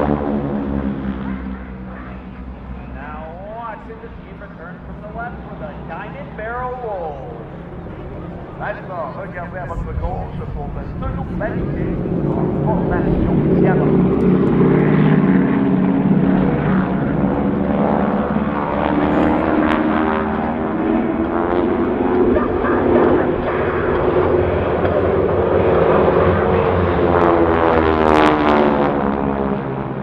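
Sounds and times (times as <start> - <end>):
propeller aircraft engines droning: 0.0 - 30.0.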